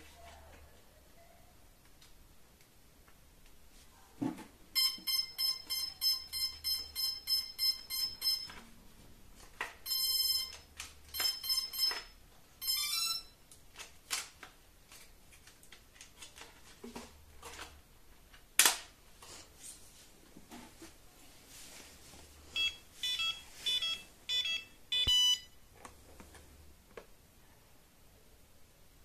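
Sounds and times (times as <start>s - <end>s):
electronic buzzer beeping: 4.8s - 8.5s, 9.8s - 13.4s, 22.6s - 25.5s.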